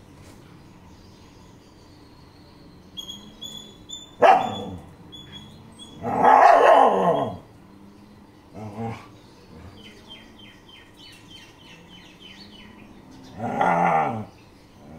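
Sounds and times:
faint high chirps: 0:00.8 - 0:06.4
dog-like animal calls: 0:03.0 - 0:07.4.

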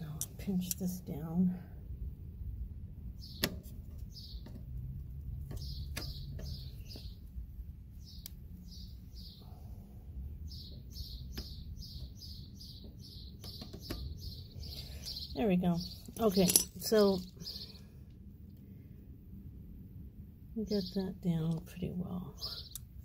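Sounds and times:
small bird chirping: 0:04.1 - 0:04.6, 0:05.4 - 0:07.4, 0:08.0 - 0:09.6, 0:10.4 - 0:17.9, 0:22.4 - 0:23.0.

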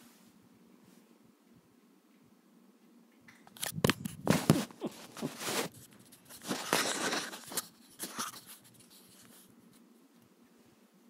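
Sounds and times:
cat scuffling on bedding: 0:04.0 - 0:09.4.

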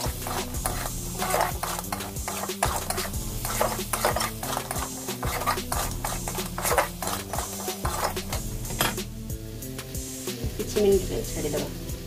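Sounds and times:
metal tongs scraping pan: 0:00.0 - 0:09.1.

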